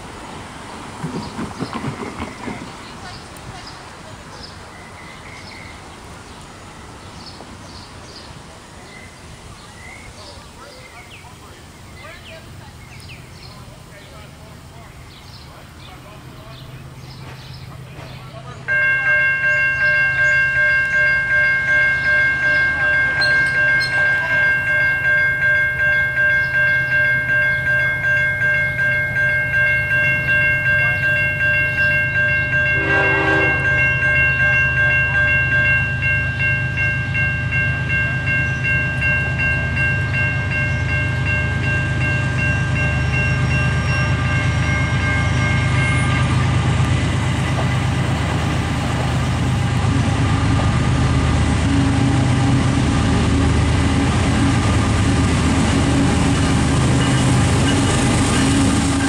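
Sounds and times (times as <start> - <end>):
freight train rumbling past: 0.0 - 59.0
crossing warning bell ringing: 17.9 - 59.0.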